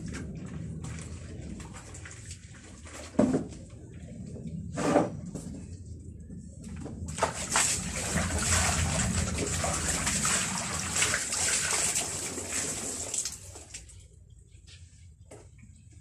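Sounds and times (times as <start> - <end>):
water splashing in basin: 7.1 - 13.9
water streaming from wrung garment: 7.1 - 14.0.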